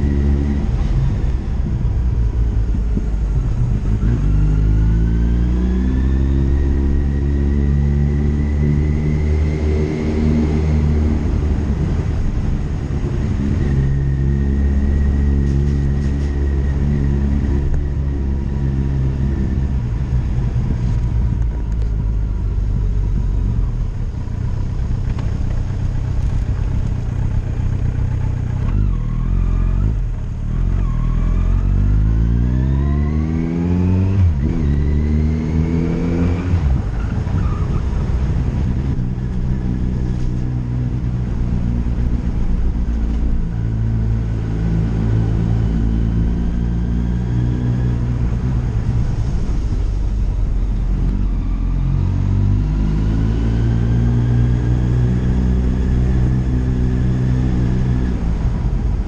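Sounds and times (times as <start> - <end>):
motorcycle engine running: 19.2 - 30.5.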